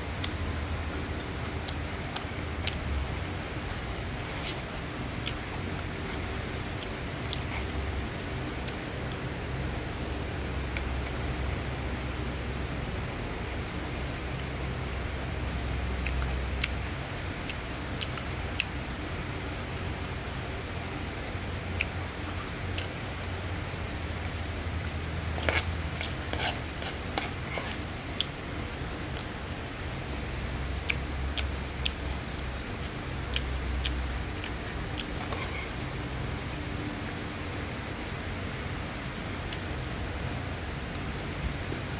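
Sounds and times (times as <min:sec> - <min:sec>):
frying hiss: 0:00.0 - 0:41.9
metal spatula scraping a pan: 0:25.4 - 0:27.8, 0:35.2 - 0:35.7.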